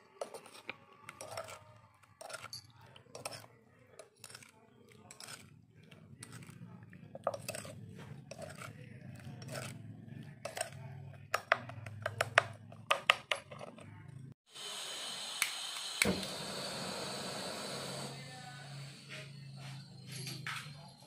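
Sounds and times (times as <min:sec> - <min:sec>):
kitchen items clicking and clinking: 0:00.0 - 0:14.4.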